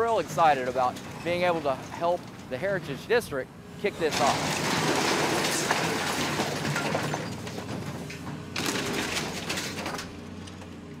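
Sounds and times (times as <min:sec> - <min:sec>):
debris crunching and clattering: 0:04.0 - 0:10.6.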